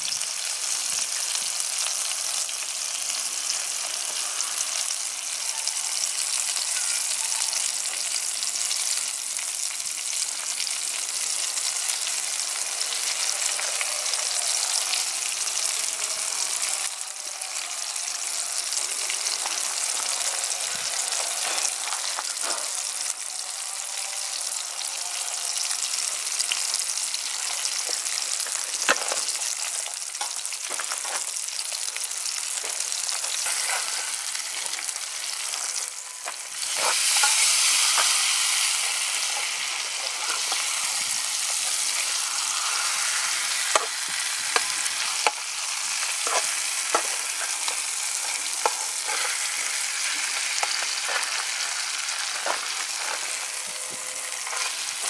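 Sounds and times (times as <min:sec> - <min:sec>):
fish sizzling in hot oil: 0:00.0 - 0:55.0
spatula scraping a pan: 0:32.8 - 0:35.8, 0:36.6 - 0:55.0.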